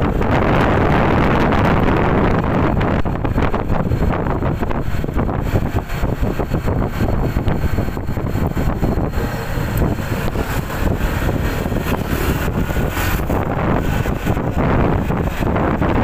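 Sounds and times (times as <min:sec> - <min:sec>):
scooter engine drone: 0:00.0 - 0:16.0
wind buffeting microphone: 0:00.0 - 0:16.0.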